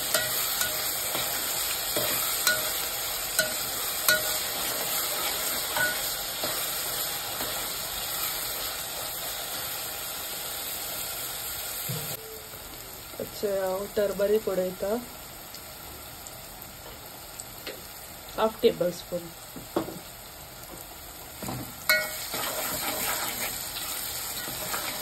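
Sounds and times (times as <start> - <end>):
vegetables sizzling in hot oil: 0.0 - 25.0
metal spoon clinking against pot: 2.0 - 4.7, 5.7 - 6.6, 21.9 - 22.2.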